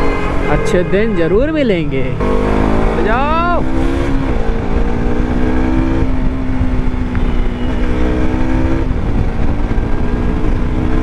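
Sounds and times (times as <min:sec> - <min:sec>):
motorcycle engine running: 0:02.0 - 0:11.0
wind rumble on microphone: 0:03.7 - 0:11.0.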